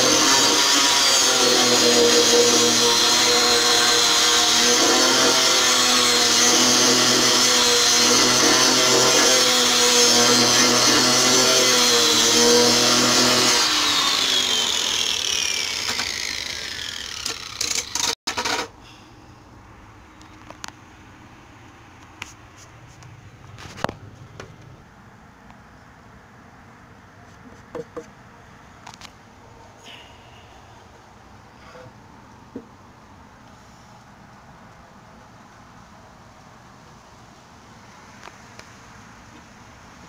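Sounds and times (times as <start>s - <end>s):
orbital sander on wood: 0.0s - 18.2s
sander motor winding down: 8.7s - 18.2s.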